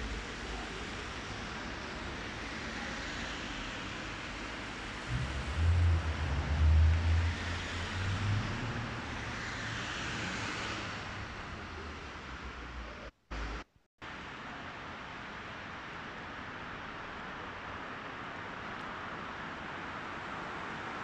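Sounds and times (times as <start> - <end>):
tyres hissing on wet asphalt: 0.0 - 13.6
deep loud rumble: 5.0 - 9.8.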